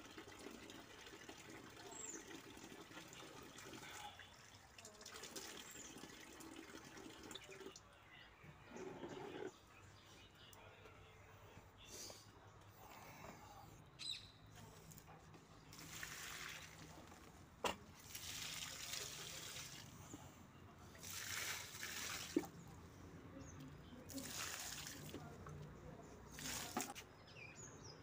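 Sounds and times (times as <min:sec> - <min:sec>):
water poured from a bucket: 0:00.0 - 0:07.8, 0:15.7 - 0:20.0, 0:20.9 - 0:22.6, 0:24.1 - 0:25.3, 0:26.3 - 0:27.0.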